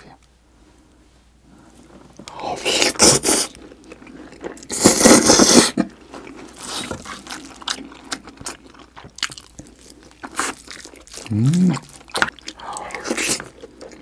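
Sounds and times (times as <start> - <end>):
loud noodle slurp: 4.7 - 5.9
wet chewing and lip-smacking: 6.2 - 14.0.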